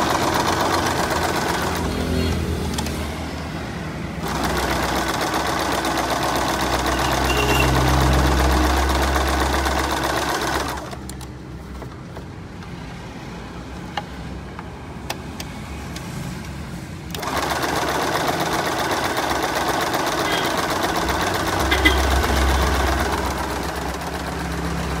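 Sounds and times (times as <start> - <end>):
sewing machine running: 0.0 - 2.9, 4.2 - 11.2, 17.1 - 25.0.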